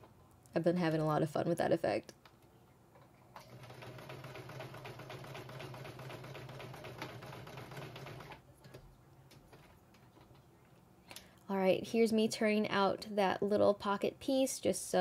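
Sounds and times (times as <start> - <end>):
sewing machine motor hum: 3.4 - 8.4.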